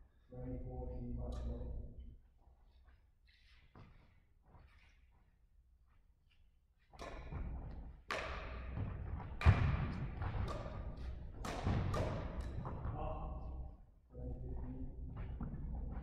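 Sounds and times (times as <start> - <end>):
racket hitting shuttlecock: 7.0 - 12.8.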